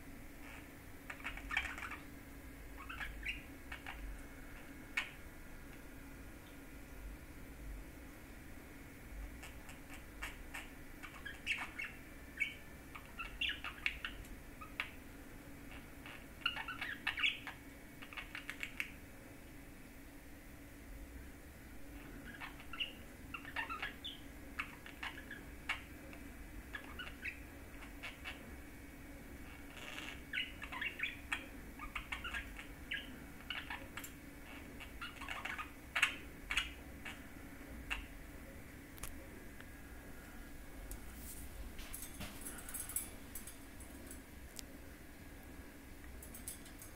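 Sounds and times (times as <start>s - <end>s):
budgerigar chirping and warbling: 0.4s - 2.1s, 2.8s - 4.0s, 9.4s - 15.0s, 15.7s - 19.0s, 22.2s - 25.9s, 26.7s - 28.4s, 29.5s - 37.3s, 37.9s - 38.1s
budgerigar chirps and clicks: 15.7s - 19.0s.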